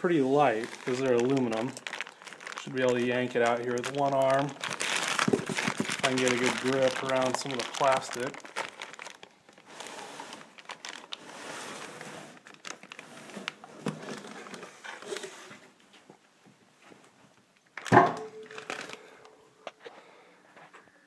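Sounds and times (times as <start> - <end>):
plastic wrapping crinkling: 0.0 - 15.3, 17.7 - 20.0
heavy metal part thump: 17.9 - 18.4.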